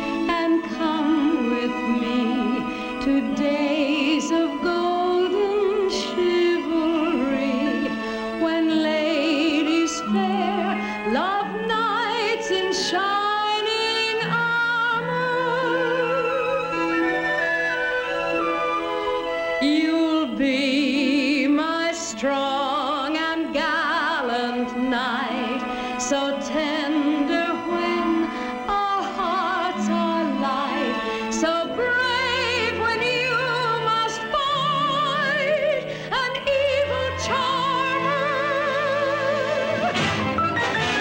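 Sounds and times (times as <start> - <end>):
orchestral music: 0.0 - 41.0.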